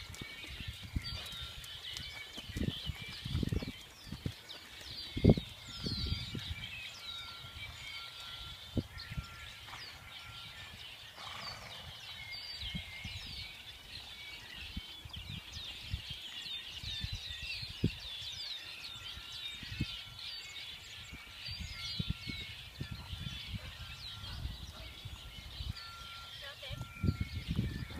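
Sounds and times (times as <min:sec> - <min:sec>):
horse hooves thumping on sand: 0:00.0 - 0:05.6
small birds chirping: 0:00.0 - 0:27.9.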